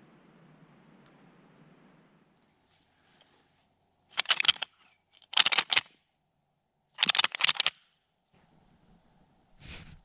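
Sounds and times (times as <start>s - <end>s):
deer rattling call clicking: 4.1s - 6.0s, 7.0s - 7.9s.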